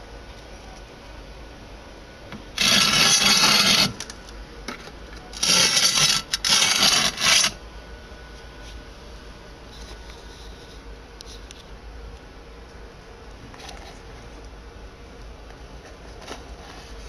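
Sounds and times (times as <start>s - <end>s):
loud rasping scrapes: 2.6s - 4.0s, 5.4s - 7.6s.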